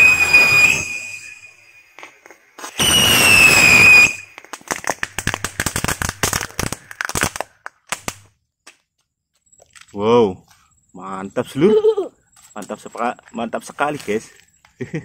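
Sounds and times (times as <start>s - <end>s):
firecracker whistle: 0.0s - 7.4s
firecracker crackling pops: 0.0s - 8.4s.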